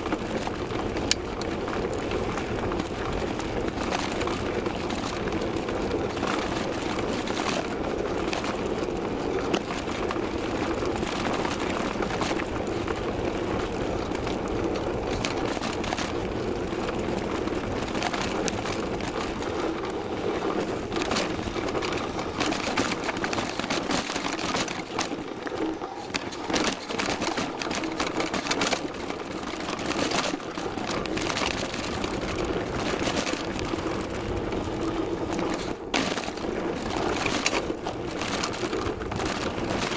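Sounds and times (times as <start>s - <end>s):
bike rattling and knocking: 0.0s - 39.9s
tyre and wind noise: 0.0s - 39.9s.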